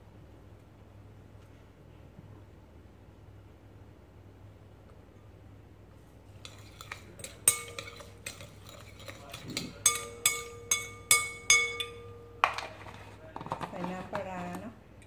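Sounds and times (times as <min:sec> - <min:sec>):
spoon scraping bowl: 0:06.3 - 0:14.6
spoon clinking glass bowl: 0:06.4 - 0:13.0.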